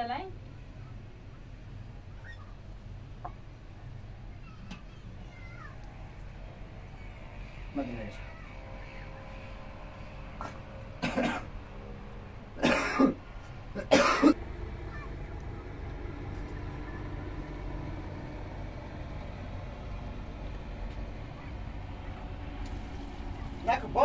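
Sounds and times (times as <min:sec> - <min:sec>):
person coughing: 0:11.0 - 0:11.5, 0:12.6 - 0:13.2, 0:13.8 - 0:14.4.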